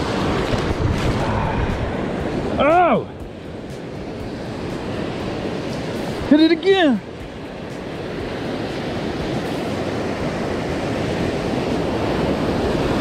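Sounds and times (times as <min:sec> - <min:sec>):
ocean surf washing in: 0:00.0 - 0:13.0.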